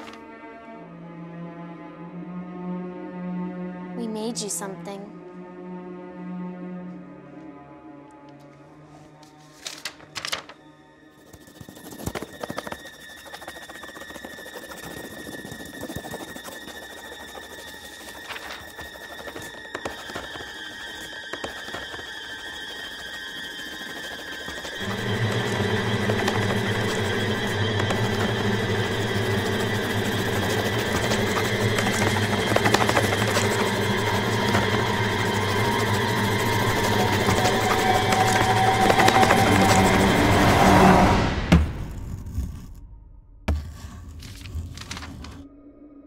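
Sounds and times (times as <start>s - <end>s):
crayon scribbling on paper: 11.2s - 40.8s
steady high-pitched tone: 21.2s - 41.0s
buzzing mechanical drone: 24.5s - 42.5s.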